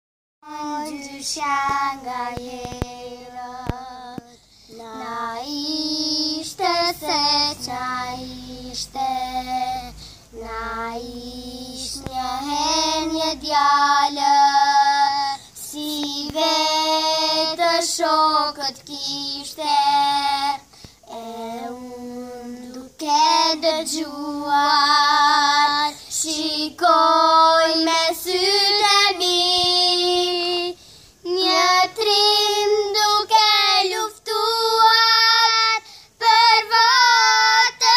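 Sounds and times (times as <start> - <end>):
girls singing together: 0.4 - 37.9.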